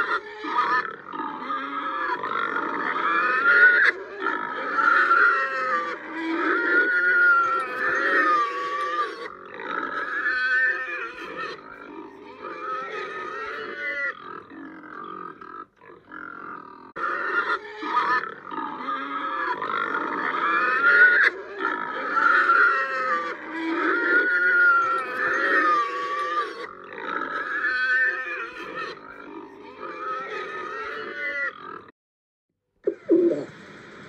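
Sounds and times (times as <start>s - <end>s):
pig grunting and oinking: 0.0s - 31.9s, 32.8s - 33.6s.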